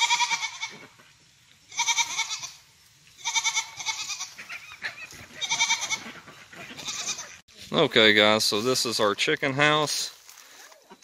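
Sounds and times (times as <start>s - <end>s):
goats bleating: 0.0s - 0.9s, 1.7s - 2.6s, 3.2s - 7.4s.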